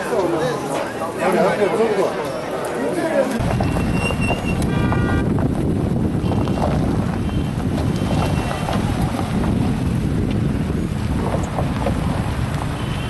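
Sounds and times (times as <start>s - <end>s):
wind buffeting microphone: 3.4s - 13.0s.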